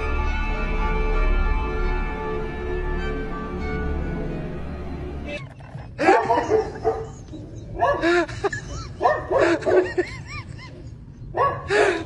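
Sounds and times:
dog whining and yipping: 6.0 - 8.1.

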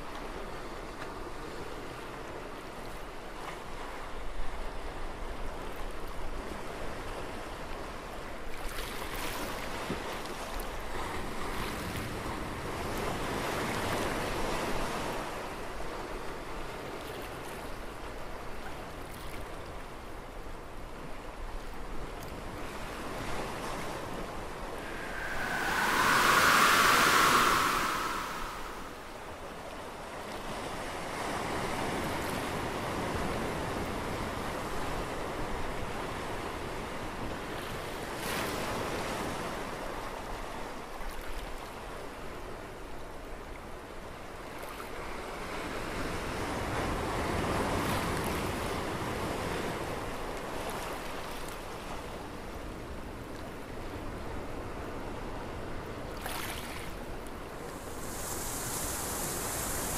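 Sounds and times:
wind: 0.0 - 59.9
ocean surf: 22.8 - 29.7, 57.4 - 59.9.

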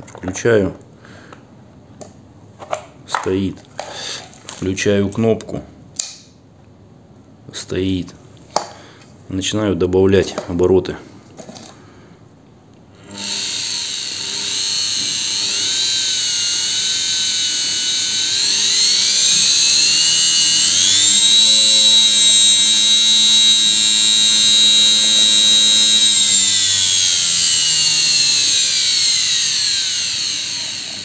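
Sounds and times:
electric motor whine: 13.0 - 31.0.

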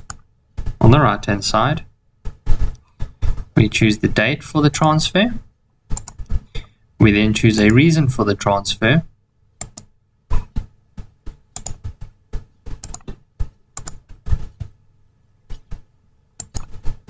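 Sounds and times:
keyboard and mouse clicking: 0.0 - 0.8, 5.9 - 6.7, 7.6 - 7.8, 9.6 - 9.9, 11.0 - 13.2, 13.8 - 14.1, 16.4 - 17.0.

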